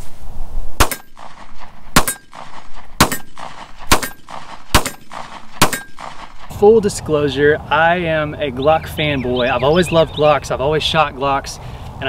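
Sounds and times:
steel target ringing: 0.8s - 1.4s, 2.0s - 6.1s
pistol shots: 0.8s - 6.6s.

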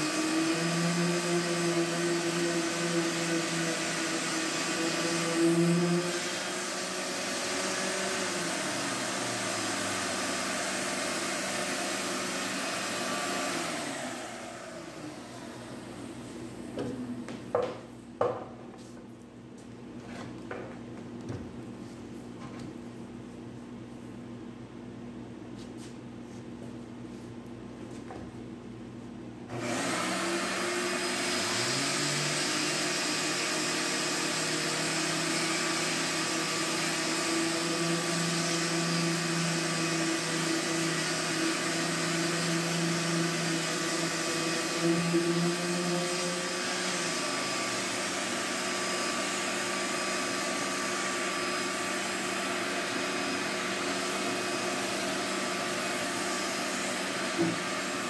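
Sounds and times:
orbital sander sanding: 0.0s - 15.4s, 29.6s - 58.0s
shop vacuum running: 0.0s - 58.0s.

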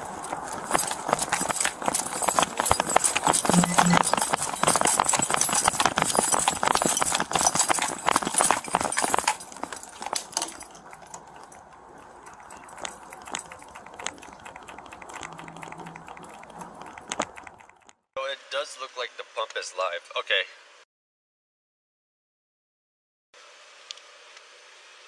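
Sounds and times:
gear jostling: 0.0s - 18.0s
running footsteps on pavement: 0.0s - 18.0s.

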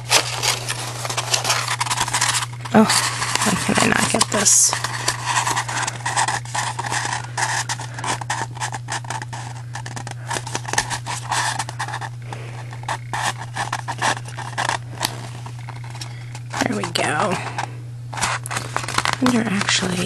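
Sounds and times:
paper rustling and crackling: 0.0s - 20.0s
paper scraping on cutting mat: 0.0s - 20.0s.

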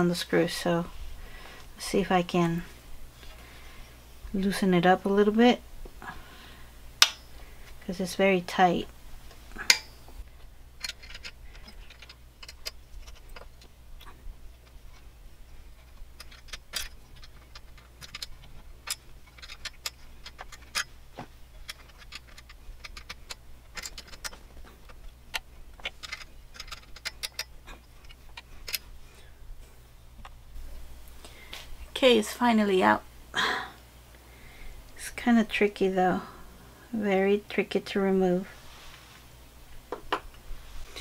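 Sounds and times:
low steady hum: 0.0s - 41.0s
allen key clicking on metal: 15.8s - 21.0s, 21.6s - 28.8s.

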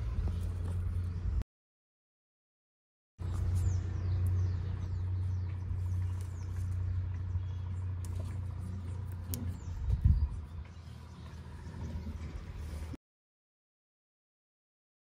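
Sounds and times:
steady low rumble: 0.0s - 1.4s, 3.2s - 13.0s.

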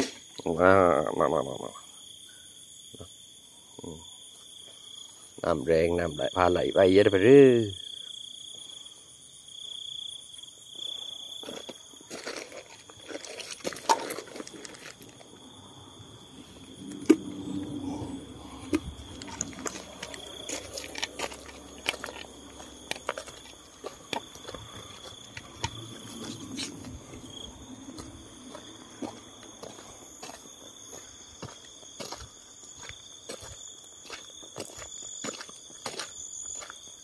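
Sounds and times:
night insects chirping: 0.0s - 37.0s
plastic bottles and gear handled: 11.6s - 15.3s, 16.8s - 27.0s.

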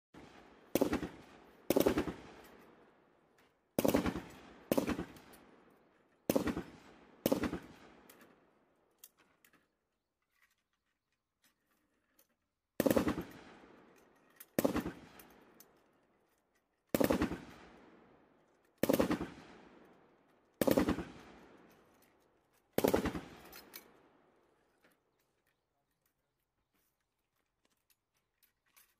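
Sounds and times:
machine-gun fire bursts: 0.2s - 2.4s, 3.8s - 5.3s, 6.3s - 8.0s, 12.8s - 13.6s, 14.6s - 15.2s, 16.9s - 17.8s, 18.8s - 19.6s, 20.6s - 21.4s, 22.8s - 23.5s.

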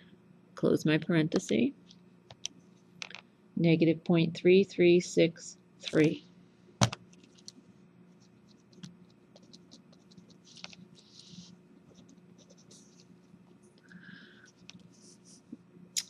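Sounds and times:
faint low hum: 0.0s - 16.0s
pen scratching on paper: 9.4s - 13.1s.

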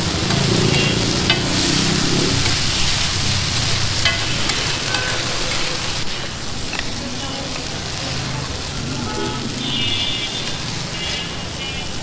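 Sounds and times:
food sizzling on griddle: 0.0s - 12.0s
metal tongs scraping iron: 4.0s - 5.6s.

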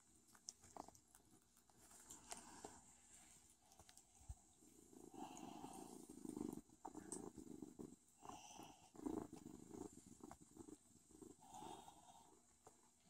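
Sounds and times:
kitten purring: 3.6s - 13.0s.

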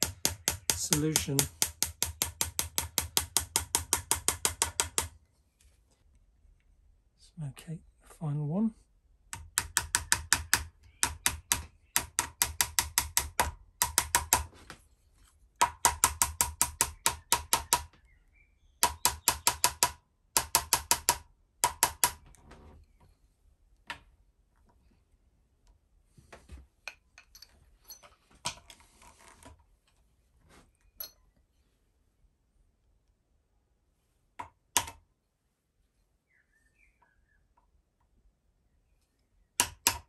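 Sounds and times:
hammer tapping pin into wood: 0.0s - 5.1s.

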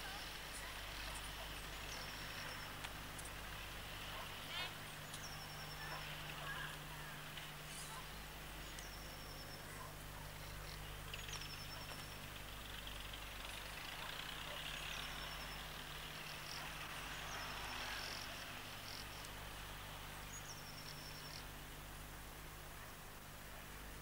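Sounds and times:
low electrical hum: 0.0s - 24.0s.

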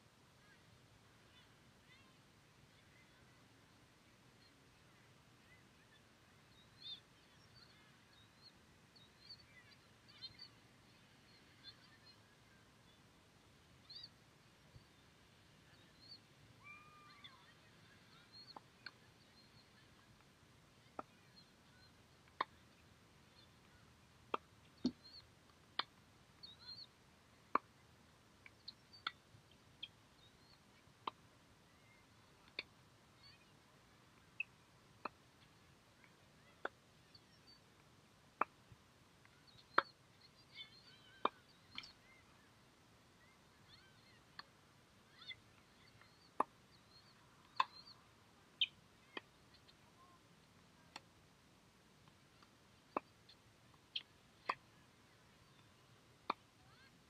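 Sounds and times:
faint bird chirps: 0.4s - 37.8s, 39.2s - 50.3s, 52.3s - 57.0s
tennis balls struck by rackets: 24.3s - 25.0s, 35.0s - 35.2s, 52.9s - 53.1s, 54.4s - 54.6s, 56.2s - 56.5s.

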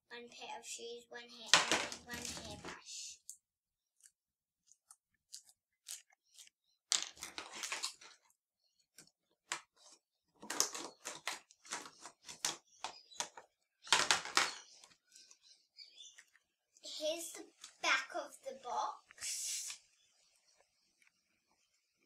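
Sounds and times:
plastic crackling: 1.4s - 3.4s, 4.0s - 16.4s.

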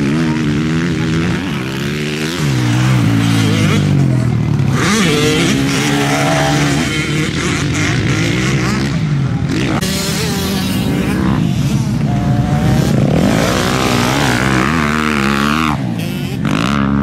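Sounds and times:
engine revving: 0.0s - 17.0s.

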